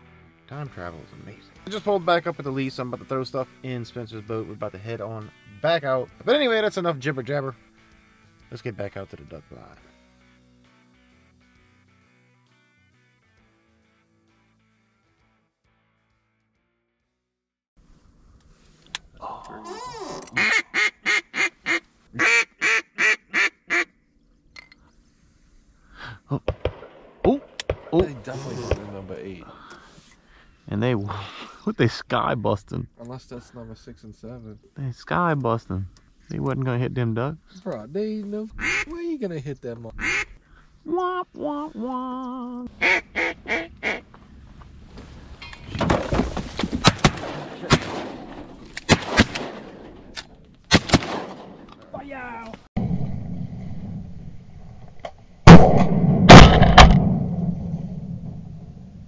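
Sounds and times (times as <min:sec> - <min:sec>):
rustling noise: 0:17.8 - 0:18.9, 0:44.0 - 0:47.2
duck quacking: 0:20.4 - 0:23.9, 0:38.6 - 0:38.9, 0:40.0 - 0:40.4, 0:42.7 - 0:44.0
shotgun shots: 0:26.5 - 0:29.0, 0:46.8 - 0:51.7, 0:55.5 - 0:57.5.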